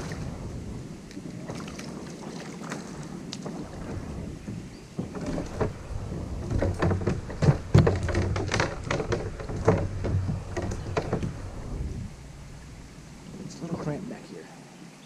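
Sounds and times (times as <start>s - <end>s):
kayak paddle splashes: 0.0s - 14.3s
kayak scraping through brush: 0.0s - 14.3s
heavy thumps: 3.7s - 13.9s.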